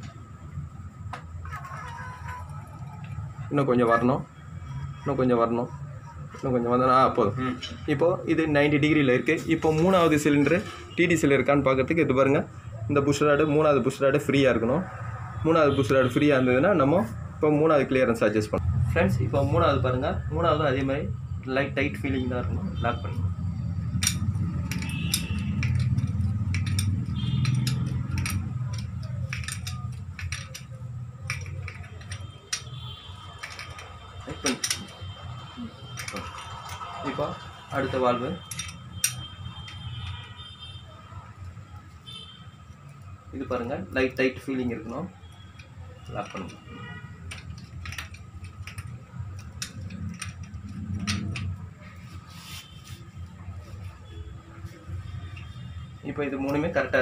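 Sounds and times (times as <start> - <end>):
metallic clicks of tools on engine: 23.9 - 35.2, 35.8 - 36.9, 38.3 - 40.4, 45.2 - 51.6
metal scrape: 52.1 - 53.1.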